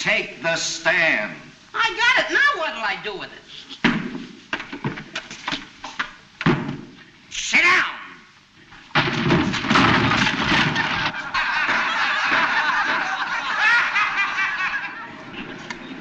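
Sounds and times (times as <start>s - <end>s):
sudden thump: 6.4s - 7.0s, 8.9s - 11.2s
people snickering: 10.2s - 16.0s.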